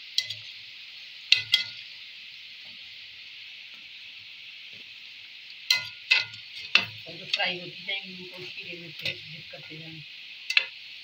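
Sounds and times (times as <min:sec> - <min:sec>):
dough deep-frying sizzle: 0:00.0 - 0:11.0
metal skimmer clinking on pan: 0:01.3 - 0:01.8, 0:05.7 - 0:07.6.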